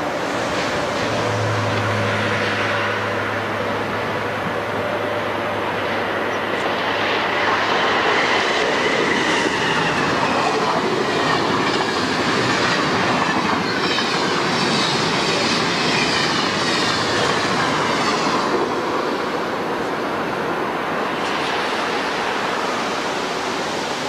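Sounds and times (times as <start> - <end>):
clickety-clack over rail joints: 0.0 - 5.0, 5.8 - 20.0
train wheels rushing on rail: 0.0 - 24.0.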